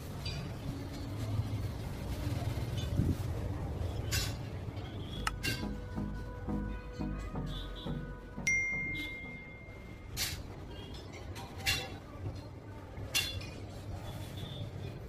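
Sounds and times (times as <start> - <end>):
clear ringing ping: 8.4 - 10.2.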